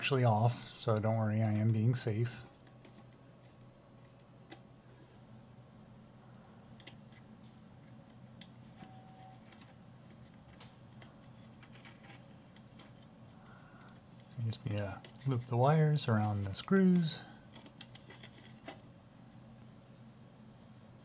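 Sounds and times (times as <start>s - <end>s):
faint low hum: 0.0s - 21.0s
clicks and scrapes of wire: 9.4s - 15.6s, 16.2s - 18.9s.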